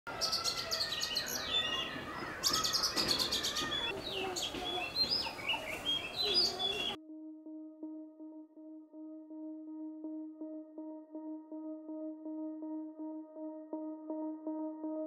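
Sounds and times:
songbirds chirping and singing: 0.1 - 7.0.

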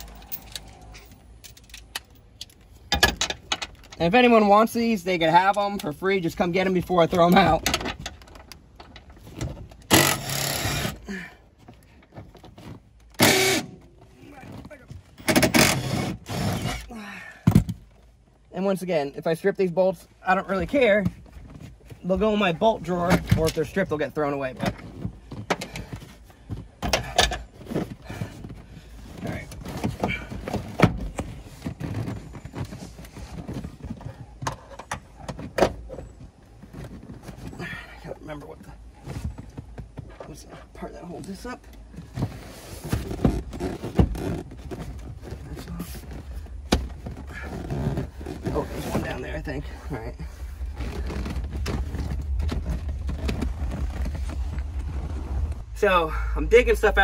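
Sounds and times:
power tool rasping on bolts: 9.9 - 11.0.

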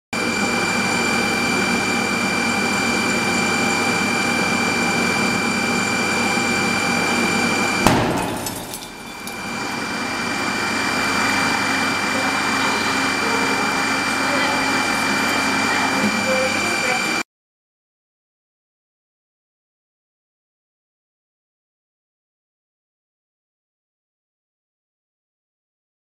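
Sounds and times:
heating panels rushing whine: 0.2 - 17.2.

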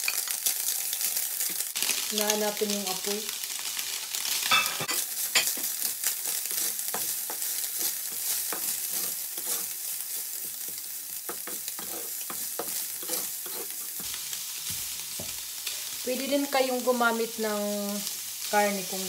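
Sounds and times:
food sizzling in oil: 0.0 - 19.0
spatula scraping and tapping pan: 4.6 - 15.4.

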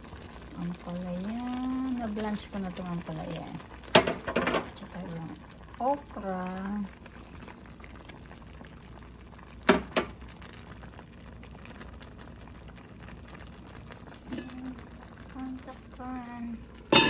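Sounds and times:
broth simmering in a pot: 0.0 - 17.0.

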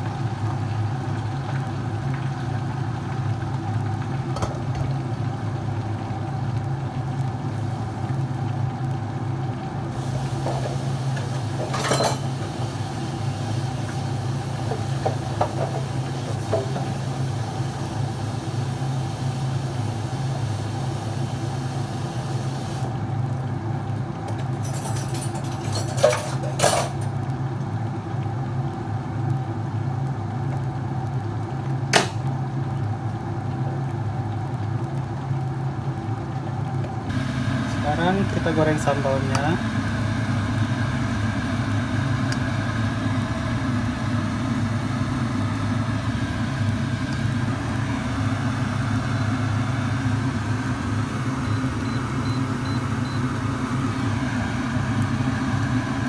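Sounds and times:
hiss: 10.0 - 11.7, 15.6 - 22.9.

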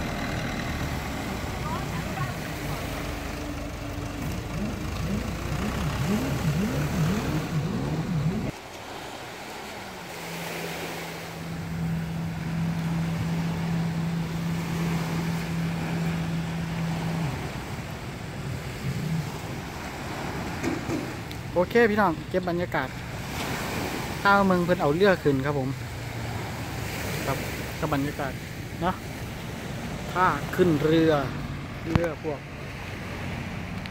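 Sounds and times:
tractor engine running loudly: 0.0 - 8.5
jet ski engine drone: 0.0 - 33.9
small waves breaking: 0.0 - 33.9.

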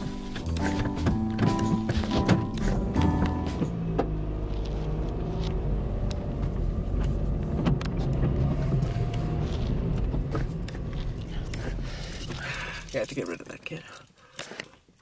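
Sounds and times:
car engine and road rumble: 0.0 - 13.9.

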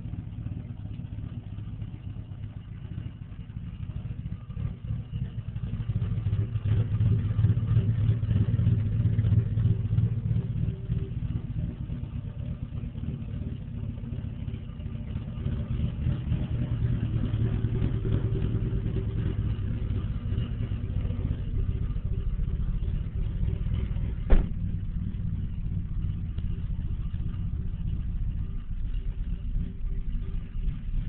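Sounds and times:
car engine idling with lope: 0.0 - 31.0
sharp knock: 24.3 - 24.6.

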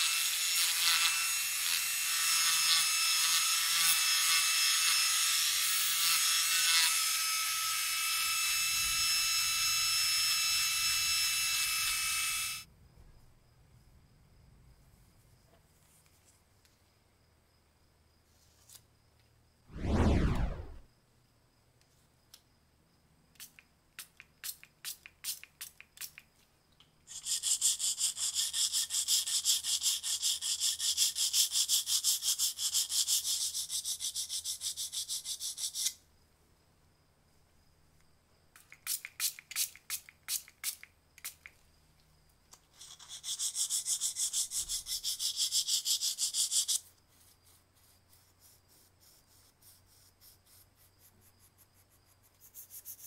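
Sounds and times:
sandpaper rubbing on metal: 42.8 - 51.0.

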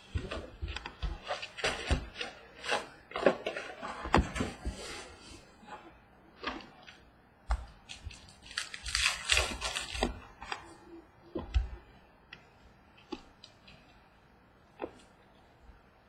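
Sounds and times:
wrapper crinkling: 7.9 - 10.2.

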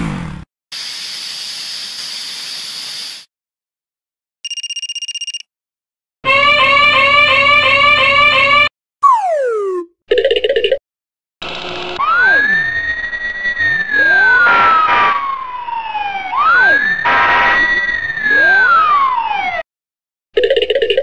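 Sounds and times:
wailing fire engine siren: 6.3 - 9.9, 12.0 - 19.6.

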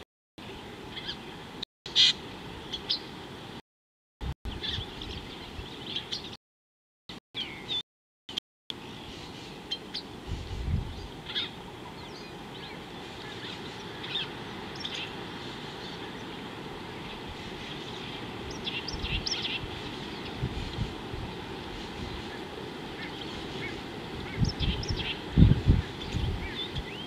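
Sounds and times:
small birds chirping: 0.4 - 3.2, 4.5 - 6.4, 7.4 - 7.8, 8.7 - 27.0
low outdoor background noise: 0.4 - 3.6, 8.7 - 27.0.

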